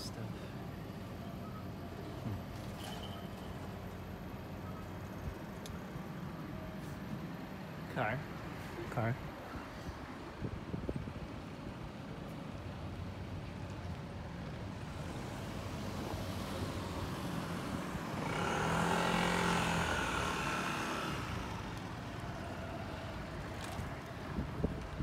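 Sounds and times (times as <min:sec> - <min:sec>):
car driving past: 0:15.2 - 0:21.9.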